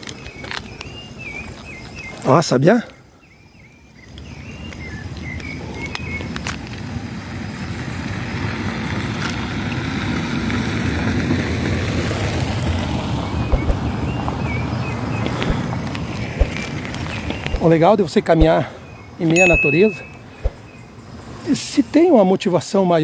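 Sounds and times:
birds chirping: 0.0s - 6.3s, 13.2s - 22.2s
car engine and tyre noise: 4.0s - 21.8s.

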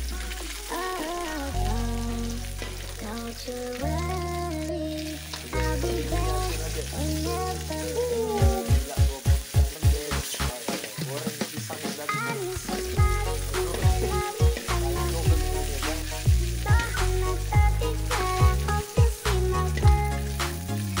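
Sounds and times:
music with deep bass: 0.0s - 10.6s, 12.6s - 21.0s
oil sizzling and spitting: 0.0s - 21.0s
metal spatula stirring: 2.5s - 3.3s.

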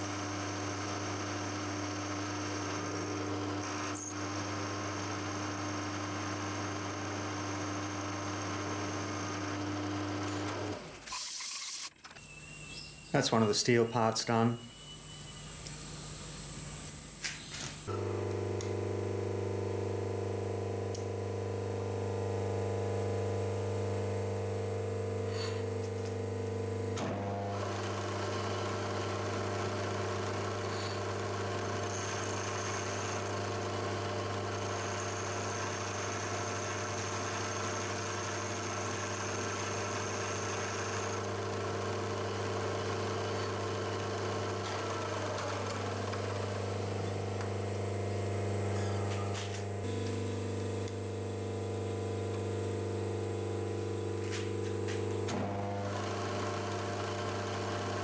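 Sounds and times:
milling machine spindle running: 0.0s - 11.9s, 17.8s - 58.0s
end mill cutting steel: 24.2s - 58.0s.

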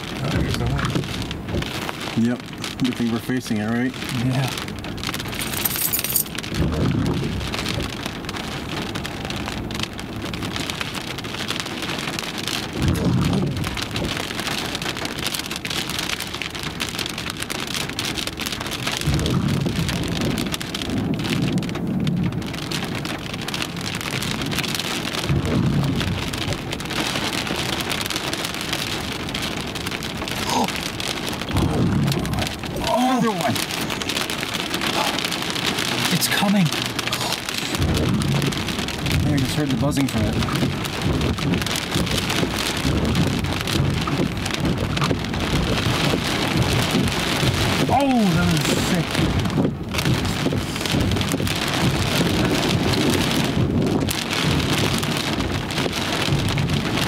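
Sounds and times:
heavy rain on glass: 0.0s - 57.0s
low rolls of thunder: 6.4s - 8.1s, 12.7s - 14.3s, 19.0s - 22.9s, 23.8s - 26.6s, 31.3s - 33.0s, 37.8s - 57.0s.

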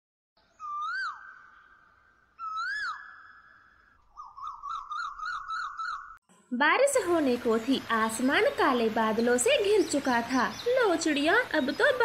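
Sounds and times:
bird chirps: 0.4s - 6.2s, 7.6s - 12.0s
whistled bird calls: 0.4s - 6.2s.

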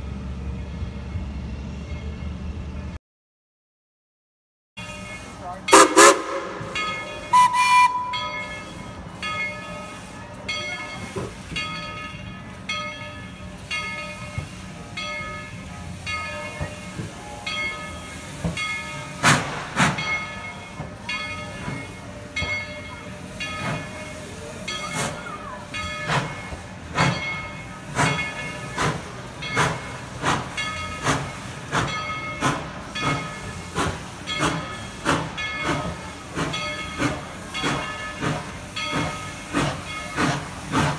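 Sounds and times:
locomotive bell ringing: 4.8s - 19.3s, 20.0s - 40.7s
steam exhaust chuffs: 5.1s - 10.2s, 17.9s - 40.9s
hissing steam: 13.5s - 40.9s.

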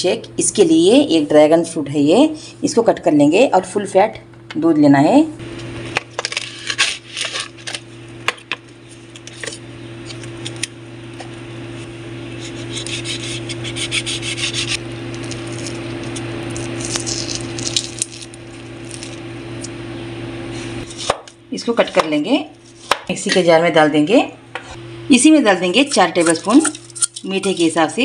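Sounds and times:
steady low hum: 0.0s - 28.0s
knife scraping fruit skin: 6.2s - 7.9s, 11.8s - 19.7s, 20.6s - 21.3s.

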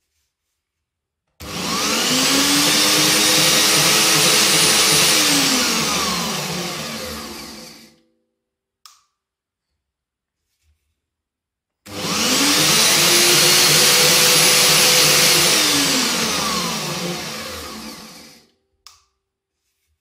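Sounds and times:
band saw motor whining: 1.4s - 7.9s, 11.9s - 18.4s.

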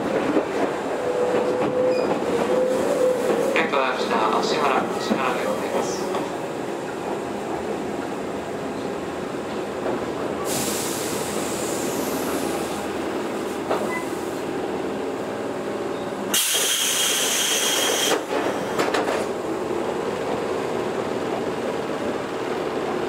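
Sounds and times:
electric train hum: 0.0s - 23.0s
compressed air hissing: 10.4s - 12.8s, 16.3s - 18.2s.

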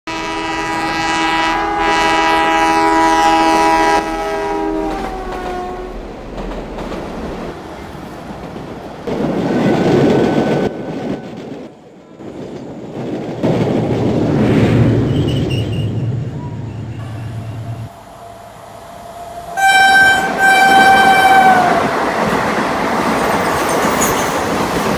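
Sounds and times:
train horn blast: 0.1s - 6.0s, 17.0s - 22.0s
train rumbling: 0.1s - 24.9s.

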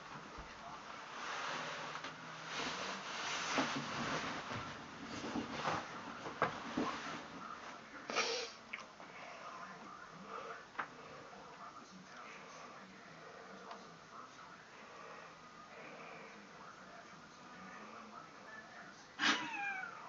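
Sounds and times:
bedding and clothes rustling: 0.0s - 8.1s.

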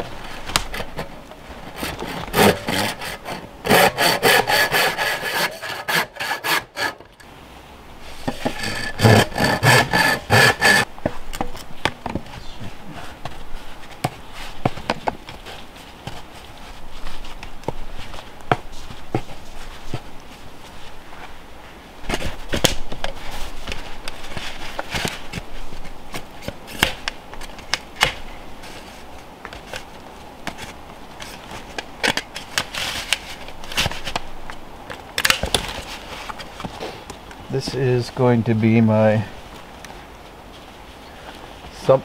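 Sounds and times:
hand saw cutting plastic pipe: 1.7s - 7.1s, 8.2s - 10.9s.

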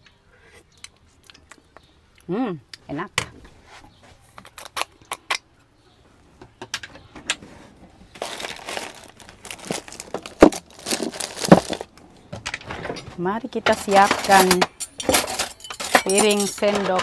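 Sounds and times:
objects rustling and clattering in drawer: 7.2s - 17.0s.

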